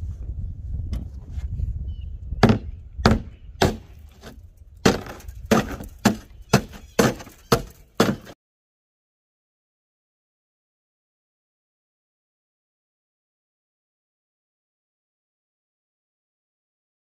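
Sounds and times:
heavy blows on truck cab: 2.4 - 3.9.

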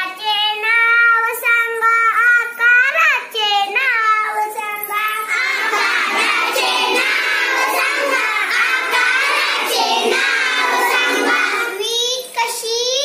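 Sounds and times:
girls singing together: 4.4 - 12.2.

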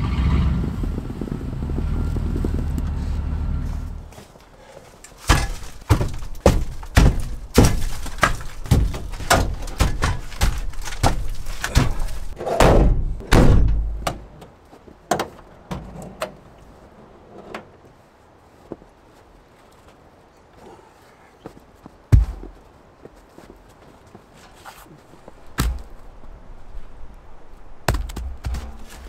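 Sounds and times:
logs thunking in a van: 5.2 - 14.5, 15.1 - 16.4.

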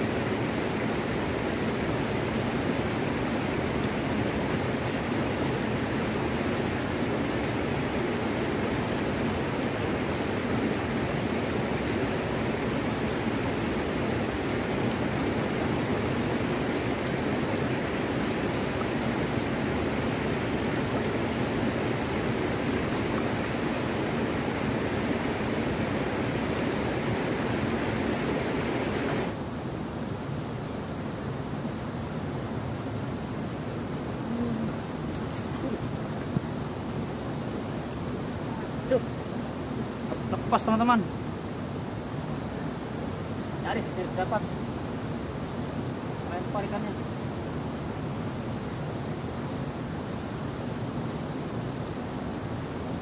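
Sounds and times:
river rapids rushing over rocks: 0.0 - 29.8.

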